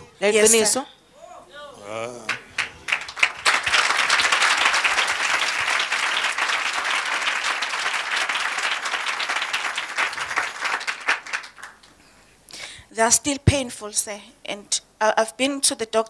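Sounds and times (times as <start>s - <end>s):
congregation applauding: 2.2s - 12.0s.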